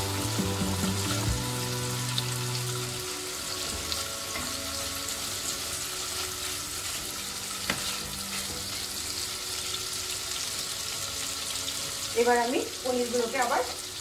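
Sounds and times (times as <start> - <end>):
cheese sizzling in oil: 0.0 - 14.0
spatula turning food: 3.6 - 10.4.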